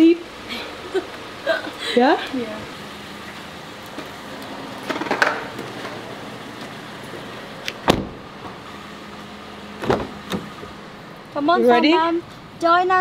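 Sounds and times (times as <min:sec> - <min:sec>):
car door shutting: 0:07.6 - 0:08.6, 0:09.8 - 0:10.8.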